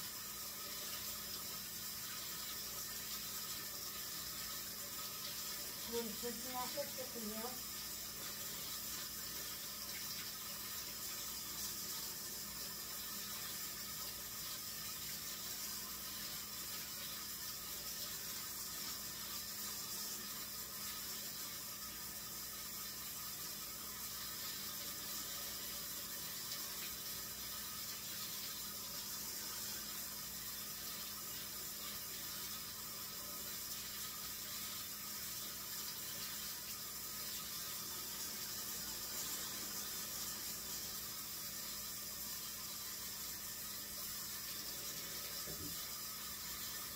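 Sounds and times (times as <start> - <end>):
faucet running into sink: 0.0 - 46.9.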